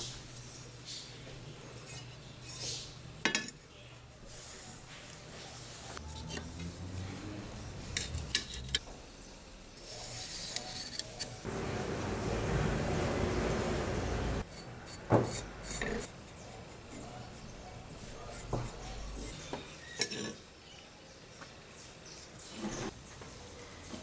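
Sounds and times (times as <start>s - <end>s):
marker scratching on metal: 9.8s - 12.2s, 13.5s - 19.9s.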